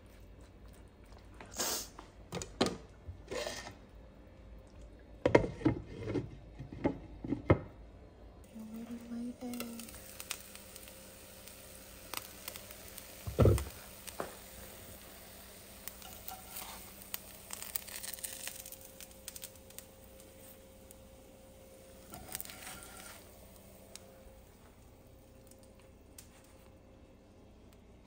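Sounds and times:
spatula scraping a pan: 0:05.4 - 0:06.7, 0:16.0 - 0:17.0, 0:22.1 - 0:23.2
eggs sizzling in a pan: 0:08.4 - 0:28.0.

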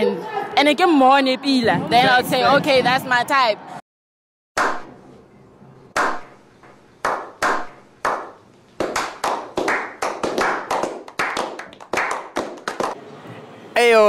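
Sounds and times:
group slow clapping: 0:05.9 - 0:13.0.

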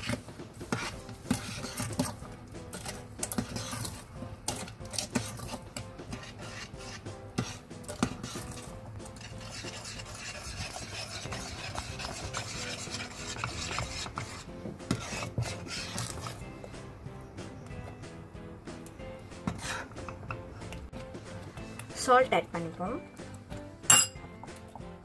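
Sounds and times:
metal spoon scraping pot: 0:00.0 - 0:16.5, 0:19.4 - 0:20.7.

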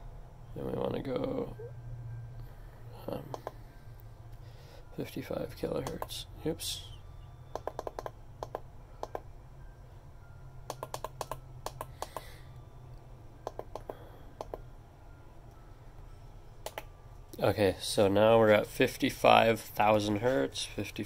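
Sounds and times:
low hum: 0:00.0 - 0:21.0
push buttons clicking: 0:05.8 - 0:06.2, 0:07.5 - 0:09.3, 0:10.7 - 0:12.3, 0:16.6 - 0:16.9.

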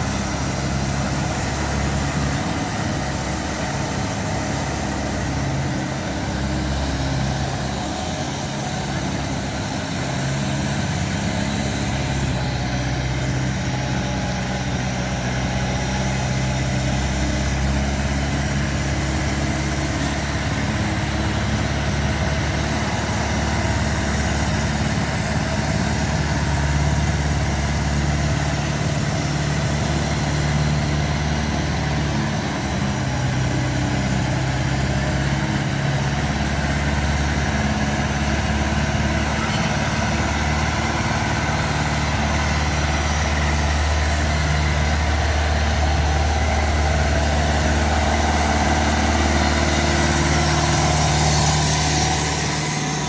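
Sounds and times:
ice resurfacer engine running: 0:00.0 - 0:53.0.

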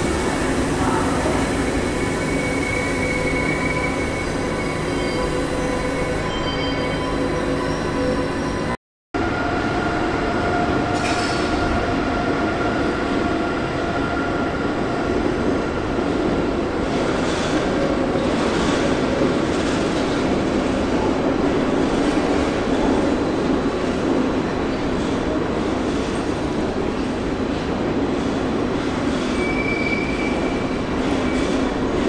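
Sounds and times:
wheel squeal: 0:01.6 - 0:08.7, 0:29.4 - 0:31.6
train wheels rumbling on track: 0:09.2 - 0:32.0.

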